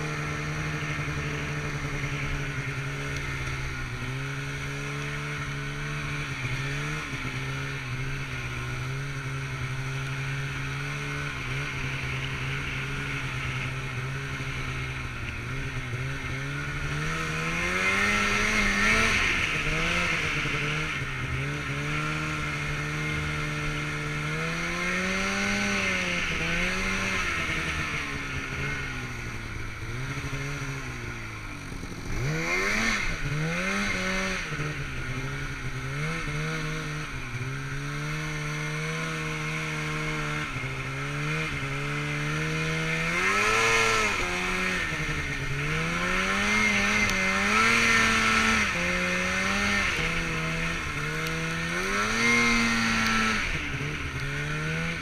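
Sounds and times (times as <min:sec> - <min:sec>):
snowmobile engine revving: 0:00.0 - 0:55.0.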